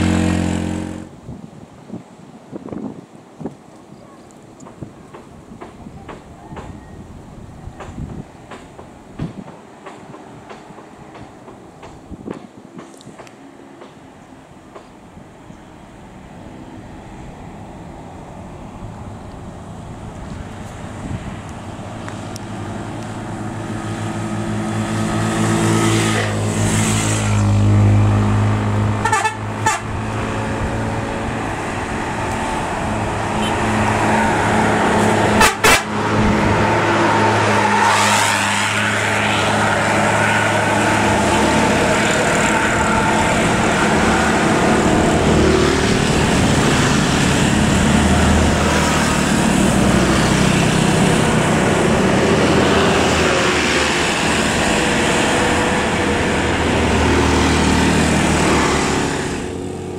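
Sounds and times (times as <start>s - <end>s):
bus horn: 0.0s - 1.1s, 29.0s - 30.0s, 33.3s - 37.6s
diesel bus engine labouring: 0.0s - 1.1s, 16.2s - 59.9s.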